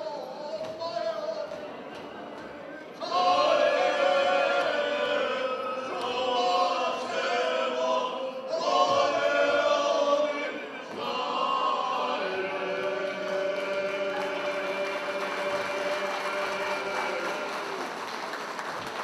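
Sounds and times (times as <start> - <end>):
choir singing unaccompanied: 3.0 - 18.1.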